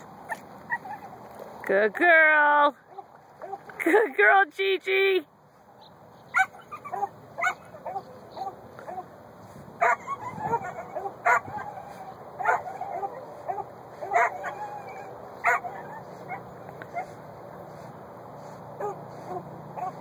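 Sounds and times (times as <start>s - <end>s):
dog yipping: 6.3s - 9.0s, 9.8s - 17.2s, 18.8s - 20.0s
dog whining: 9.8s - 16.4s.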